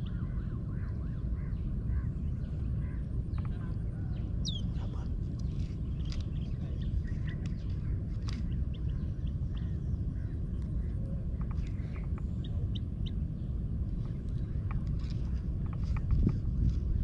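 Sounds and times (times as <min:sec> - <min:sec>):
bird chirps: 0:00.0 - 0:13.5
low rumble: 0:00.0 - 0:17.0.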